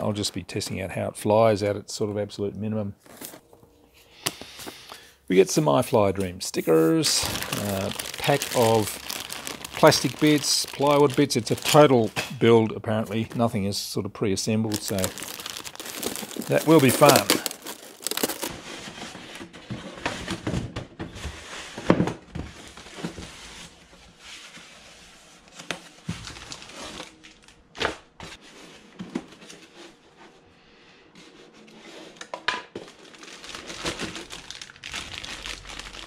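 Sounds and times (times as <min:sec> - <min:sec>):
plastic packaging crinkling: 0:06.9 - 0:12.2, 0:14.5 - 0:18.5, 0:32.9 - 0:36.0.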